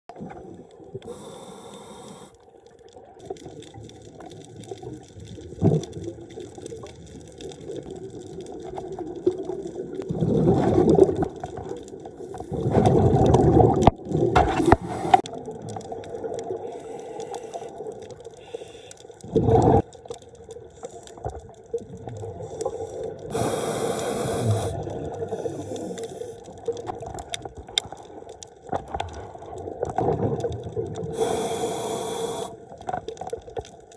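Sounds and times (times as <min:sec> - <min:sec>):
regulator breathing underwater: 0:01.0 - 0:02.4, 0:14.5 - 0:15.3, 0:16.6 - 0:17.8, 0:18.4 - 0:19.8, 0:22.3 - 0:26.5, 0:31.1 - 0:32.8
exhaled bubbles bursting: 0:03.0 - 0:16.8, 0:19.2 - 0:31.4.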